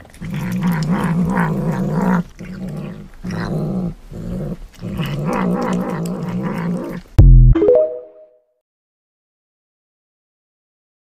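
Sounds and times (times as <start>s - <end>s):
cat chewing: 0.0s - 7.2s
cat growling: 0.0s - 7.2s.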